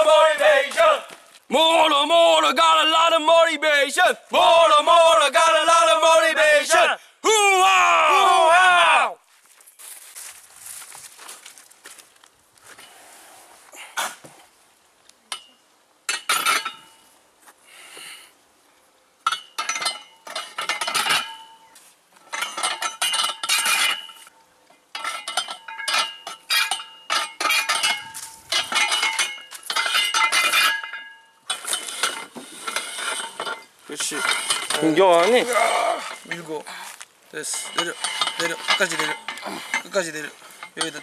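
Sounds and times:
weight plates clinking on metal frame: 0:15.3 - 0:17.1, 0:19.2 - 0:24.3, 0:24.9 - 0:36.7, 0:37.4 - 0:41.0.

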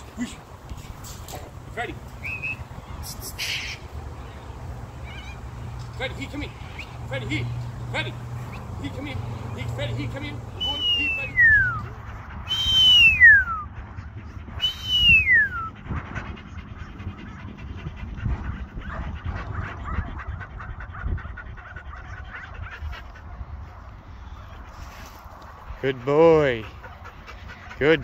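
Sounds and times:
faint wind: 0:00.0 - 0:28.0
long falling whistles: 0:12.5 - 0:13.7, 0:14.6 - 0:15.7.

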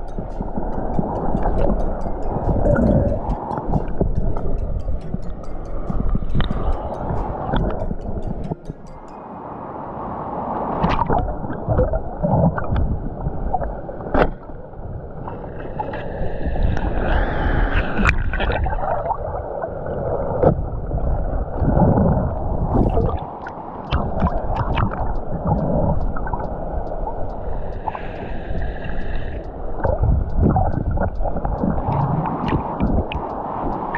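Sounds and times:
sharp clicks and knocks: 0:00.0 - 0:09.2
underwater stream gurgling: 0:00.0 - 0:09.2, 0:10.0 - 0:33.9.

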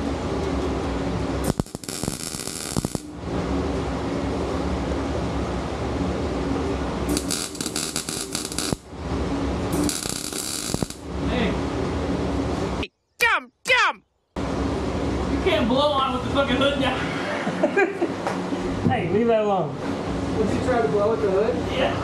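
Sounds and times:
power tool motor hum: 0:07.1 - 0:08.8, 0:09.8 - 0:11.0.

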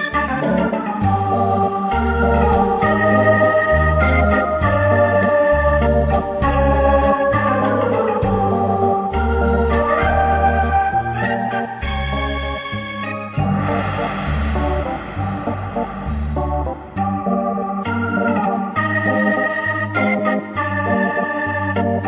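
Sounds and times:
organ-like keyboard tune: 0:00.0 - 0:22.0
bass line: 0:01.0 - 0:19.2
pitch sweep: 0:11.8 - 0:19.2.

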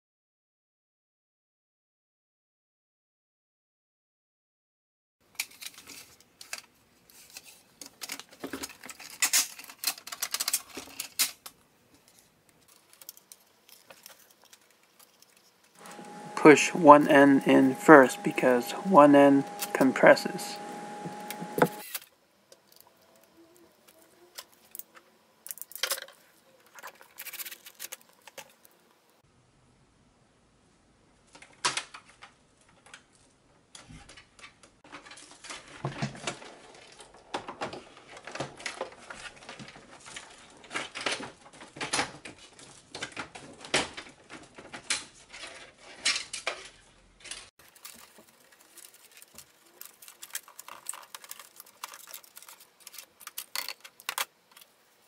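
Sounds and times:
plastic parts clicking and rattling: 0:05.3 - 0:16.3, 0:20.6 - 0:28.7, 0:31.3 - 0:54.8.

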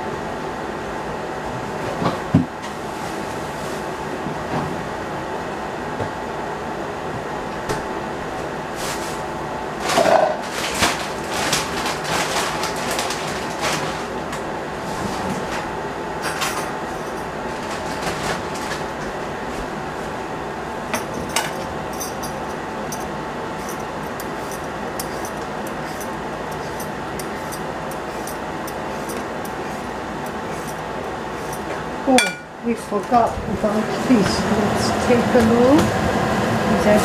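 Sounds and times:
exhaust fan whirring: 0:00.0 - 0:37.0
kitchen utensils clattering: 0:16.2 - 0:18.9, 0:20.9 - 0:33.2.

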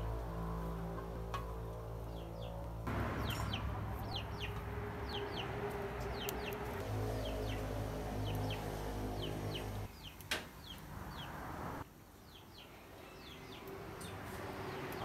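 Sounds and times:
small birds chirping: 0:02.0 - 0:15.0
chickens clucking: 0:03.0 - 0:10.2.

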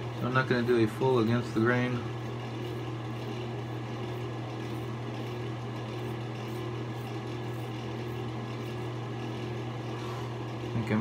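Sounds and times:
low mechanical hum: 0:00.0 - 0:11.0
razor scraping stubble: 0:02.4 - 0:09.6.

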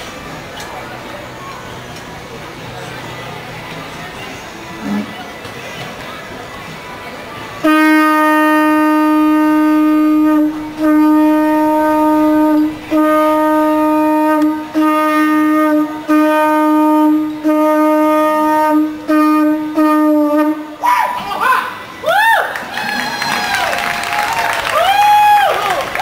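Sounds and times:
conch shell trumpet blasts: 0:07.6 - 0:20.8.

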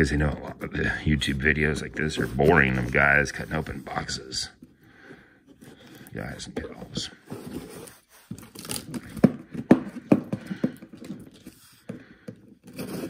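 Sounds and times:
box cutter slicing cardboard: 0:12.6 - 0:13.0.

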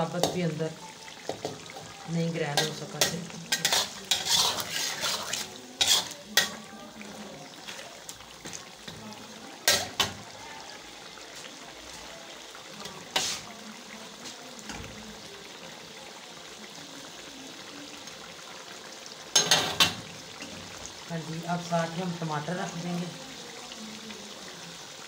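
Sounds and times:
chicken sizzling in oil: 0:00.0 - 0:25.0
spatula scraping and knocking pan: 0:01.2 - 0:06.6, 0:13.1 - 0:13.5.

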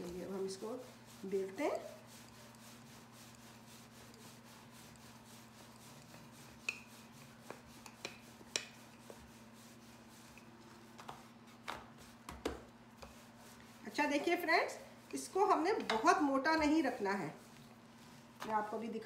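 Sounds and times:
rolling pin rubbing dough: 0:00.0 - 0:19.0
rolling pin knocking on board: 0:12.3 - 0:12.7.

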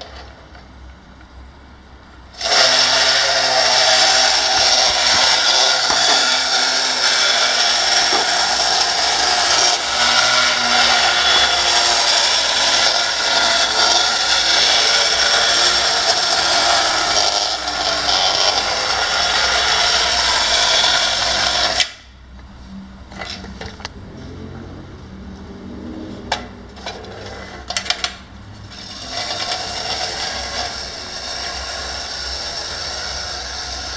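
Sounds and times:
clockwork motor whirring: 0:02.3 - 0:22.0, 0:28.7 - 0:33.9.

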